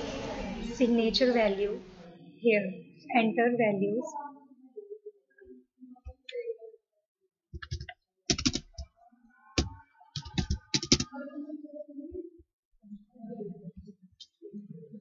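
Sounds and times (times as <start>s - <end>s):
computer keyboard typing: 7.6s - 8.9s, 9.6s - 11.1s.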